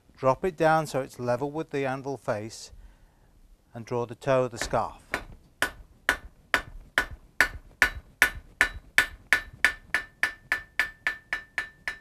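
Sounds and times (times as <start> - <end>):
hammer striking hot steel: 4.6 - 12.0.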